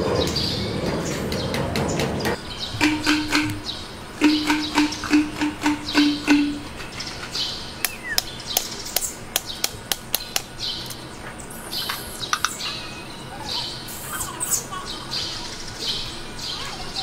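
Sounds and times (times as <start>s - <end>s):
birds chirping: 0.0s - 17.0s
sharp clicks: 2.8s - 11.0s.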